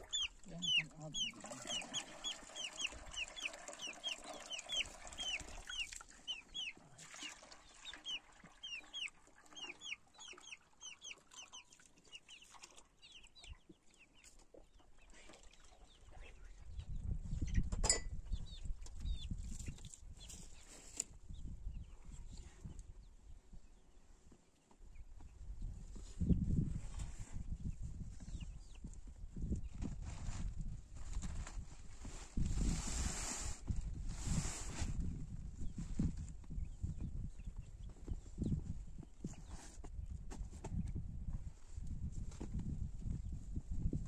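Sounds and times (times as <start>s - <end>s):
chicks peeping: 0.0s - 6.9s, 7.8s - 17.7s, 18.3s - 22.8s, 27.6s - 28.9s, 35.7s - 39.6s.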